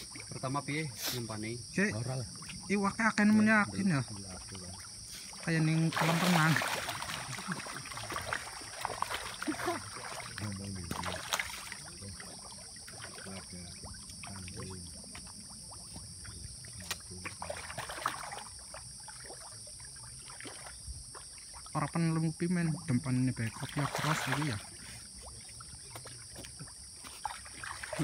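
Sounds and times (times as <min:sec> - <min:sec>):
fish splashing at surface: 0:04.2 - 0:21.7, 0:23.5 - 0:28.0.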